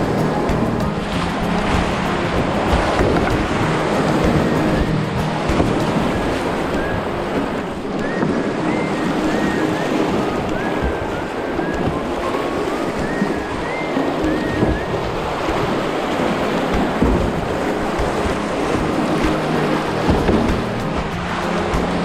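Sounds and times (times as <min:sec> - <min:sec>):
paddle splashes: 0:00.0 - 0:22.0
rapids rushing and splashing: 0:00.0 - 0:22.0.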